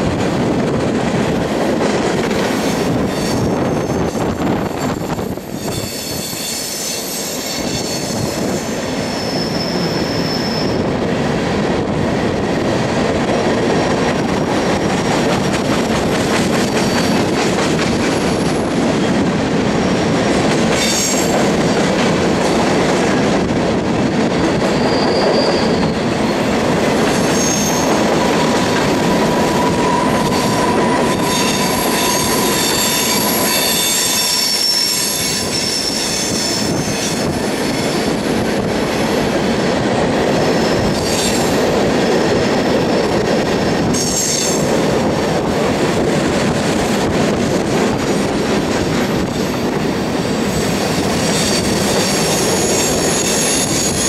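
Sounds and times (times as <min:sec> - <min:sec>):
steel train wheels rumbling on rail: 0:00.0 - 0:54.0
wheel flange squeal: 0:24.7 - 0:26.4, 0:29.4 - 0:36.0.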